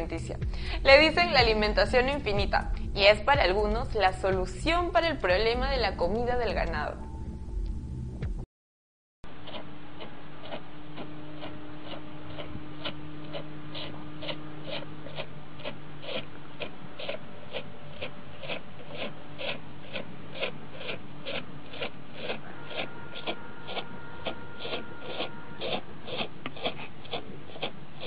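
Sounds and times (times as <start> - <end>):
faint steady hum: 0.0 - 8.4, 9.3 - 28.0
cow sucking: 9.3 - 28.0.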